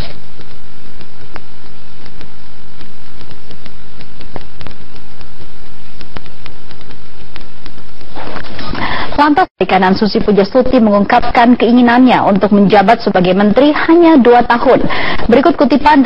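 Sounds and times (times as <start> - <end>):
sharp clicks: 0.0 - 8.1.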